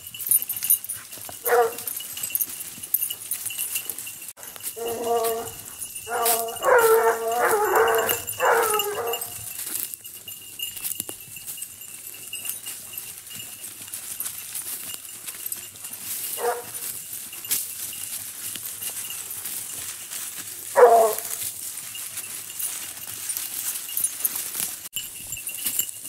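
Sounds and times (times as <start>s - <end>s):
hound crying: 1.4s - 1.9s, 4.5s - 9.5s, 20.7s - 21.4s.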